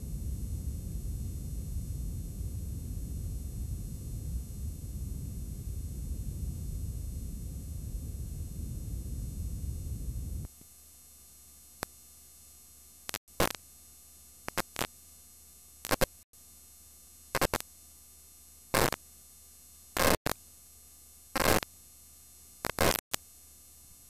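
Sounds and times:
bursts of static hiss: 0:00.0 - 0:10.6, 0:13.0 - 0:13.7, 0:14.4 - 0:15.0, 0:15.8 - 0:16.2, 0:17.3 - 0:17.7, 0:18.7 - 0:19.0, 0:19.9 - 0:20.4, 0:21.3 - 0:21.7, 0:22.6 - 0:23.4
steady low hum: 0:00.0 - 0:24.0.

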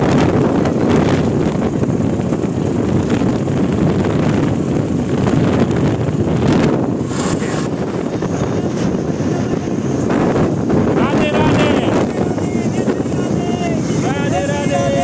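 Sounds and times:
road noise inside moving vehicle: 0:00.0 - 0:15.0
wind buffeting microphone: 0:00.0 - 0:15.0.

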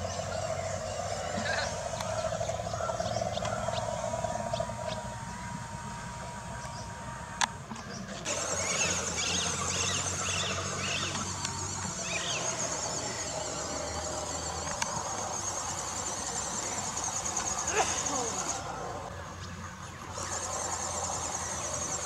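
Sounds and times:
insects chirping: 0:00.0 - 0:22.0
low hum: 0:00.0 - 0:22.0.

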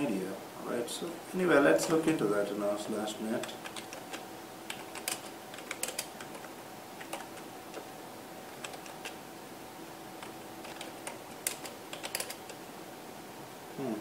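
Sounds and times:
faint steady hum: 0:00.0 - 0:14.0
keyboard typing: 0:03.4 - 0:07.9, 0:08.5 - 0:09.2, 0:10.2 - 0:12.6.

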